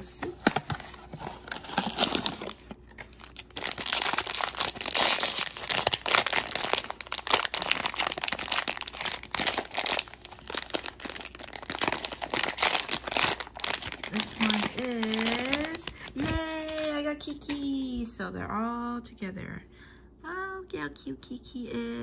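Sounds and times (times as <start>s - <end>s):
plastic bag crinkling: 0.9s - 17.5s.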